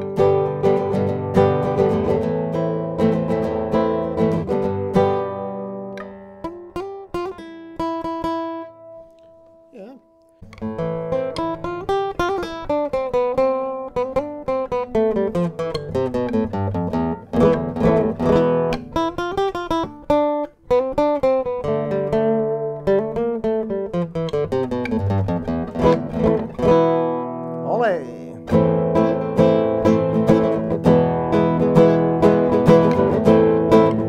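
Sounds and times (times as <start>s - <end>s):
classical guitar fingerstyle: 0.0s - 34.0s.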